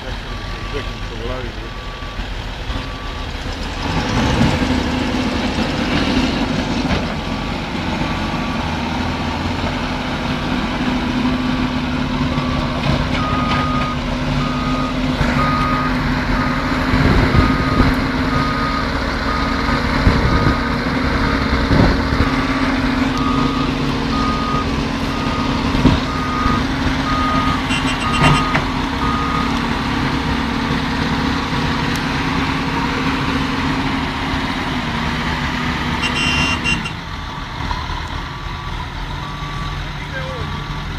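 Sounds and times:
diesel engine running under load: 0.0s - 40.9s
reversing alarm beeping: 12.4s - 16.6s, 23.2s - 29.6s, 36.0s - 37.0s.

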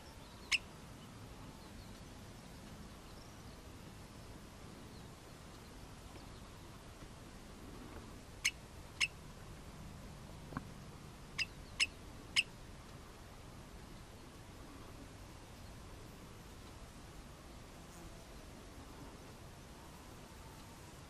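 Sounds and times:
bird alarm calls: 11.4s - 12.5s.

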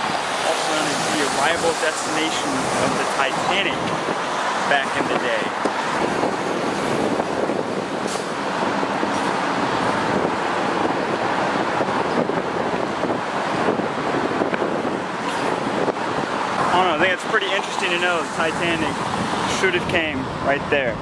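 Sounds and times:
road traffic: 0.0s - 21.0s
wind on microphone: 2.4s - 17.2s.

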